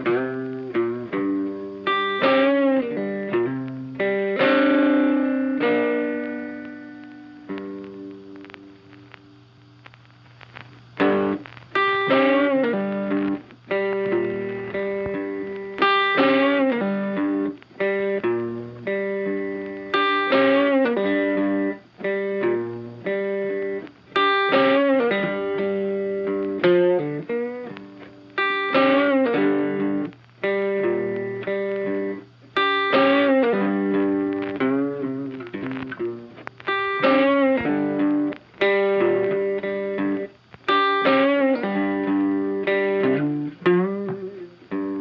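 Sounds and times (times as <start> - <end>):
plucked guitar tune: 0.0 - 9.8, 10.4 - 45.0.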